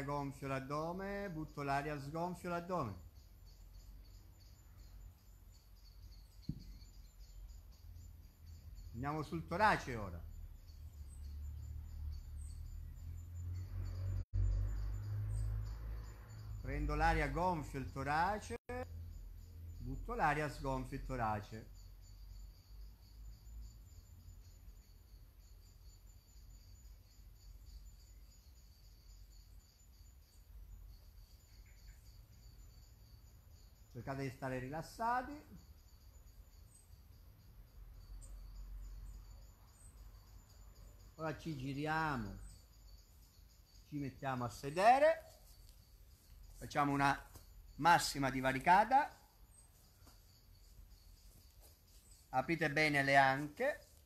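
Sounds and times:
crickets chirping: 0.0 - 54.0
soft knock: 6.4 - 6.8.

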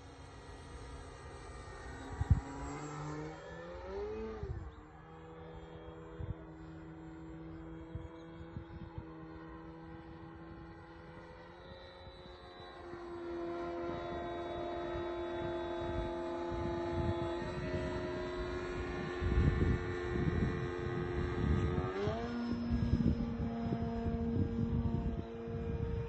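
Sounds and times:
model plane motor droning: 0.0 - 26.0
wind rumble on microphone: 0.0 - 26.0.

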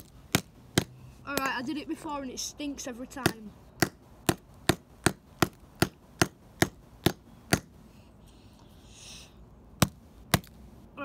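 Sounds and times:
hammer striking battery on concrete: 3.2 - 7.7.

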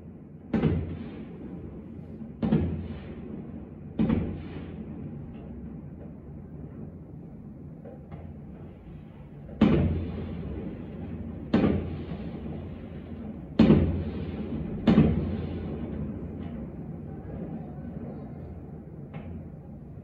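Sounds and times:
fireworks bangs: 0.5 - 20.0
rumbling echo: 8.8 - 20.0.

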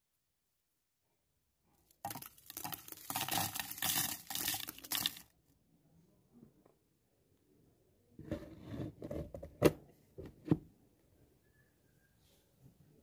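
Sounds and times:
dried chillies rattling in plastic bowl: 2.0 - 5.3.

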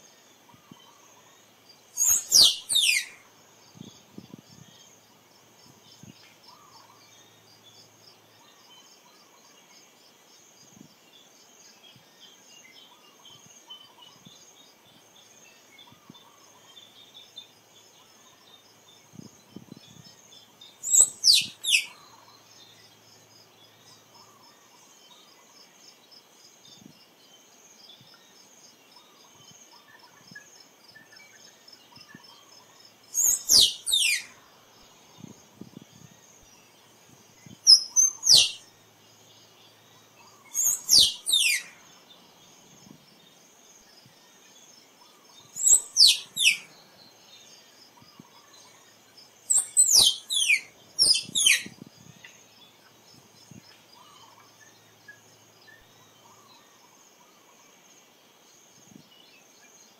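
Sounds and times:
insects and crickets chirping: 0.0 - 59.9
squirrel calling: 2.0 - 3.2, 20.8 - 22.1, 33.2 - 34.4, 37.7 - 38.6, 40.3 - 41.8, 45.5 - 46.7, 49.5 - 51.7.

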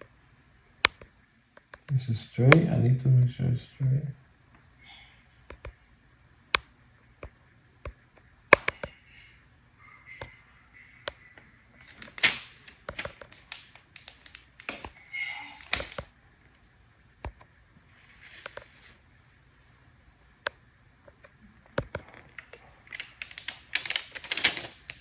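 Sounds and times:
plastic sheet crinkling: 11.8 - 16.1, 17.8 - 19.1, 22.0 - 25.0.

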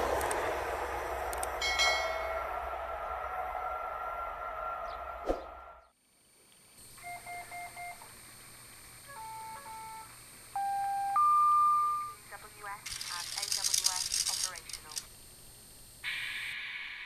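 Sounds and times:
train: 0.0 - 5.9
faint steady hum: 5.9 - 16.4.

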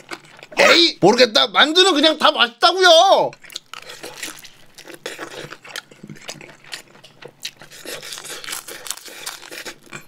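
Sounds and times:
person chewing crispy food: 0.0 - 0.8, 3.3 - 10.0.

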